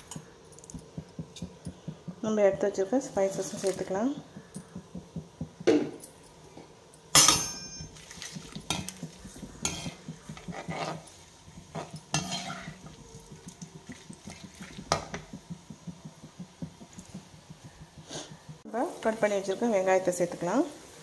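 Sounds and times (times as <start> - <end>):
spices sizzling in oil: 0.0 - 21.0
metal spatula scraping a pan: 8.7 - 13.0.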